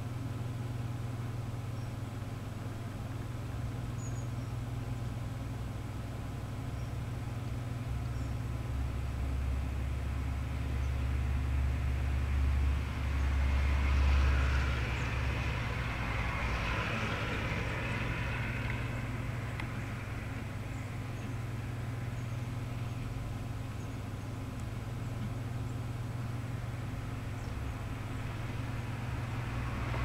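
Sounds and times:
steady low rumble: 0.0s - 30.0s
vehicle passing hiss: 11.1s - 22.7s, 26.6s - 30.0s.

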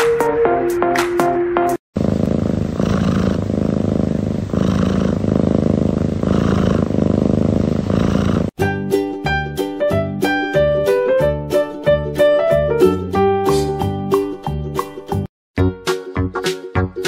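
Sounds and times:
cat purring loudly: 2.0s - 8.6s
snatch of music: 13.5s - 14.0s.

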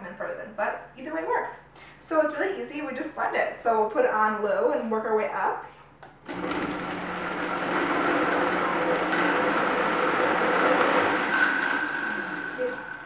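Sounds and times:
blender motor churning: 6.3s - 13.0s
high motor whine: 7.2s - 13.0s.

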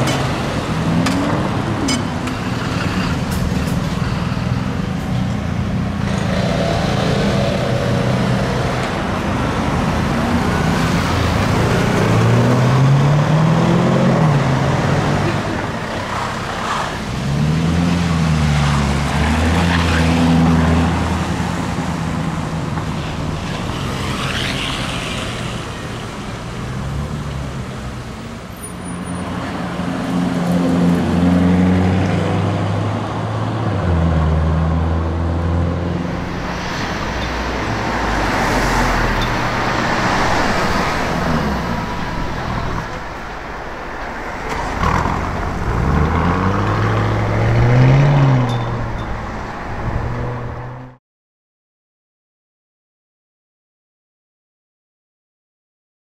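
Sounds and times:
car engines accelerating: 0.0s - 28.5s, 44.2s - 51.0s
street traffic noise: 0.0s - 51.0s.

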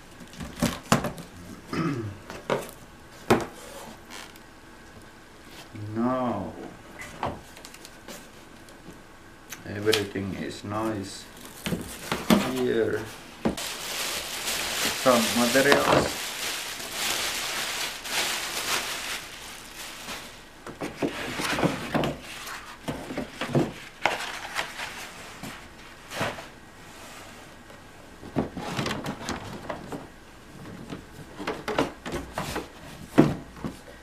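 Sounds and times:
plastic wrapping crinkling: 11.2s - 21.5s
parts rustling and knocking in box: 11.5s - 26.5s, 28.2s - 33.9s.

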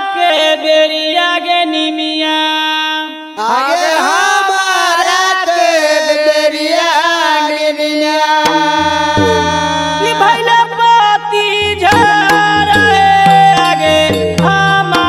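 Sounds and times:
man singing long wavering notes: 8.2s - 15.0s
musical accompaniment: 8.4s - 15.0s
low bass notes: 8.5s - 10.7s, 11.6s - 15.0s.

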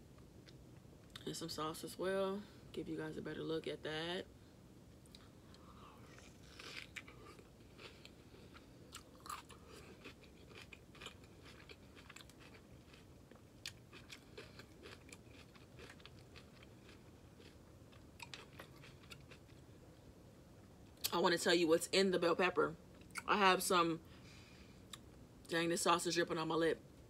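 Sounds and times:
chewing with small crunches: 5.0s - 20.1s.

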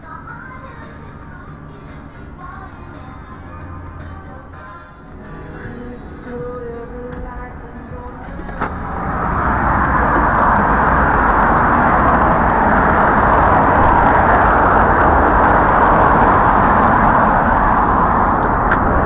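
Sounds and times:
cars driving past: 0.0s - 19.0s.

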